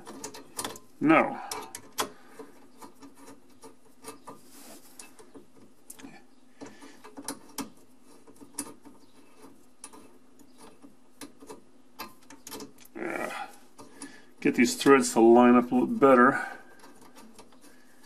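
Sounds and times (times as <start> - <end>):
threaded nut clicking and scraping: 0.0 - 18.0.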